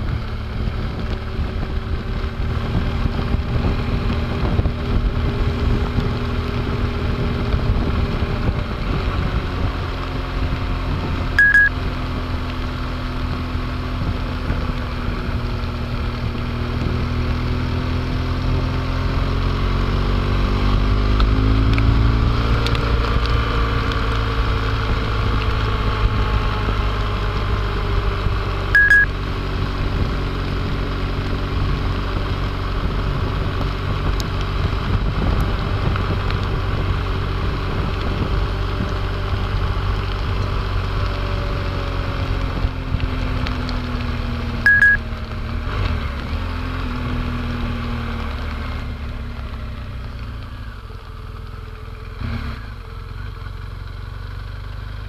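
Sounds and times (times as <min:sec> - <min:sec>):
wind noise: 0:00.0 - 0:11.5, 0:20.2 - 0:44.2
motorcycle engine running: 0:00.0 - 0:55.0
short high beep: 0:11.4 - 0:11.7, 0:28.8 - 0:29.1, 0:44.7 - 0:45.0.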